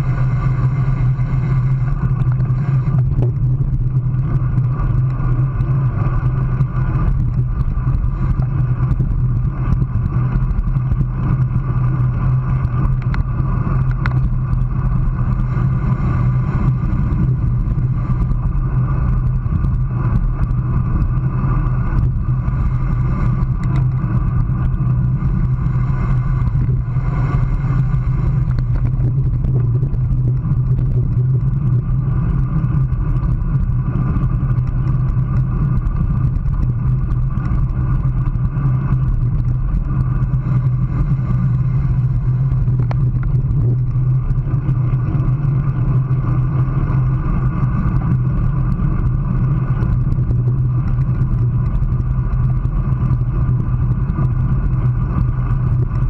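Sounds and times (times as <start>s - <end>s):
bike tyres on asphalt: 0.0s - 56.0s
wind on microphone: 0.0s - 56.0s.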